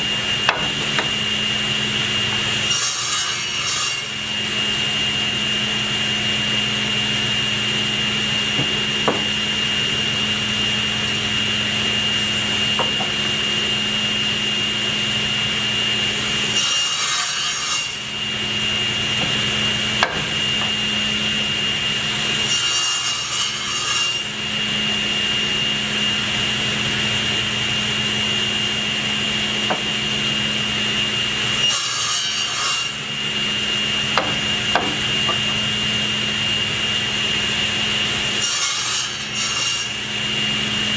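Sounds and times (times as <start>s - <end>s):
table saw whining: 0.0s - 40.9s
blade cutting wood: 0.1s - 4.7s, 15.8s - 24.4s, 31.4s - 35.7s, 38.3s - 40.1s.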